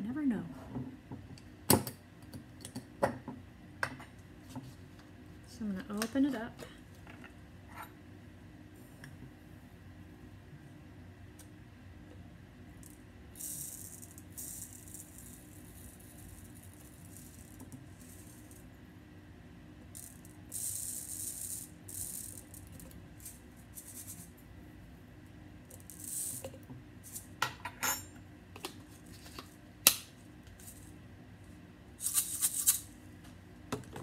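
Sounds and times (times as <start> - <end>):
seed shaker rattle: 12.8 - 18.7, 19.9 - 24.4, 25.7 - 27.4, 28.8 - 29.6, 30.5 - 31.0, 32.0 - 33.0.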